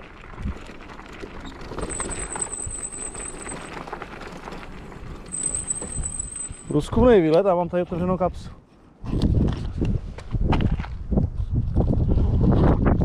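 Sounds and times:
scooter wheels rattling: 0.0 - 6.9.

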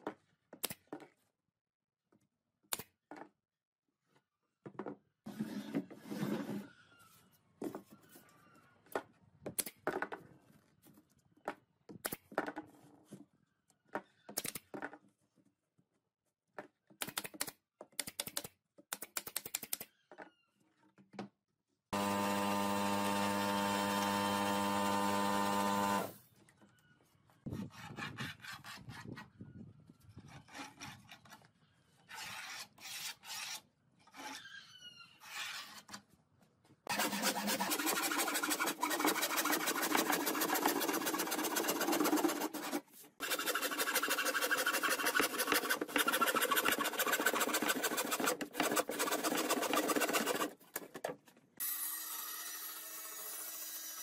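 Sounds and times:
hand saw rasping through wood: 36.9 - 50.6
wood knocking and scraping: 43.4 - 51.4.

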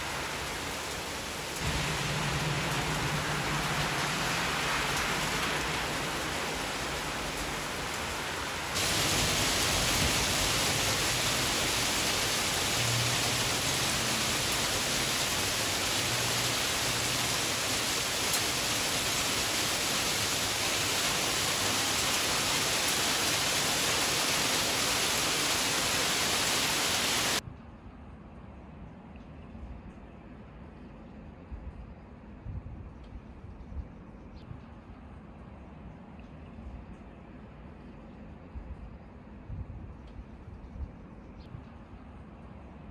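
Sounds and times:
heavy rain hissing: 0.0 - 27.4
outdoor background sound: 0.0 - 42.9.

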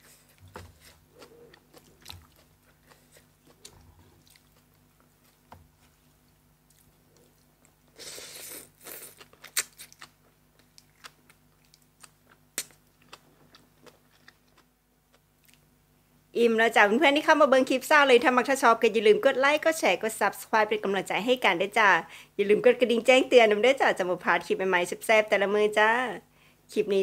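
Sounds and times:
chewing and crunching food: 0.0 - 15.7.

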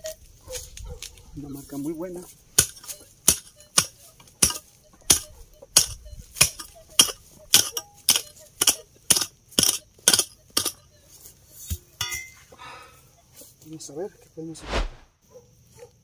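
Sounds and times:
metal detector signal: 2.8 - 8.9.

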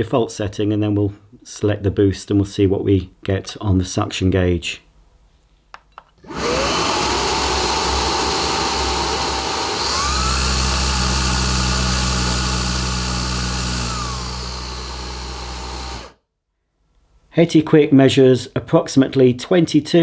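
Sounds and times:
vacuum motor whine: 6.2 - 16.2.

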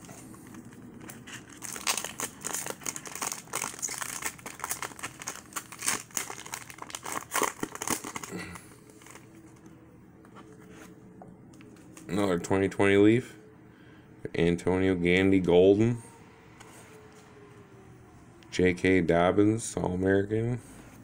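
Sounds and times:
foil wrapper tearing and crinkling: 0.1 - 9.3.

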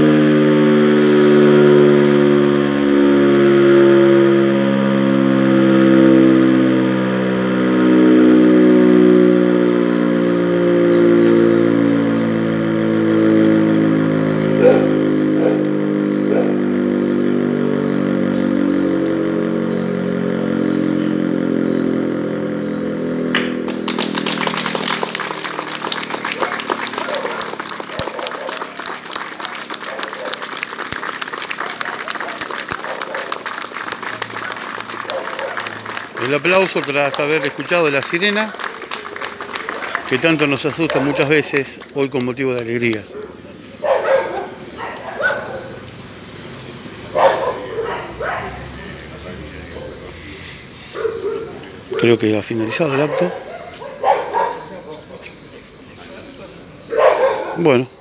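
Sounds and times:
fire siren wailing: 0.0 - 58.0
applause: 23.4 - 43.1.

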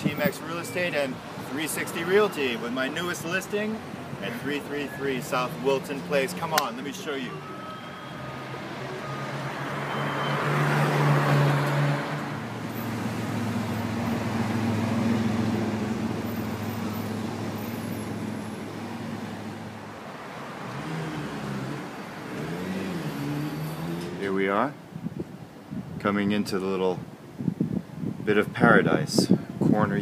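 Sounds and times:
car passing: 1.0 - 24.4.

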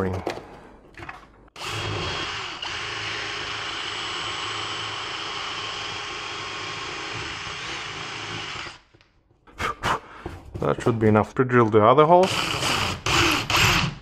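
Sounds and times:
cordless drill boring drywall: 1.6 - 8.9, 12.2 - 14.0.

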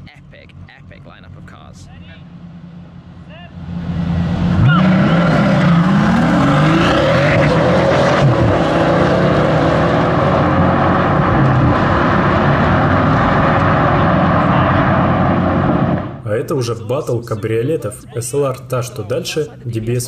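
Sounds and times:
cars accelerating hard: 3.5 - 16.2.

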